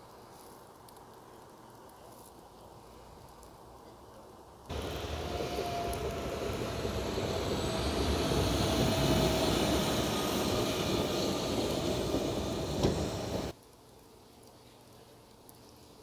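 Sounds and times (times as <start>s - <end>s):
faint steady whine: 4.7s - 13.5s
vehicle engine rumbling: 4.7s - 13.5s.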